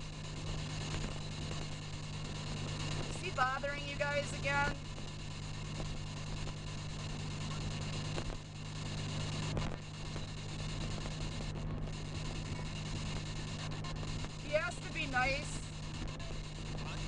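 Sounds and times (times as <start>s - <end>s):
car cabin road noise: 0.0s - 17.0s.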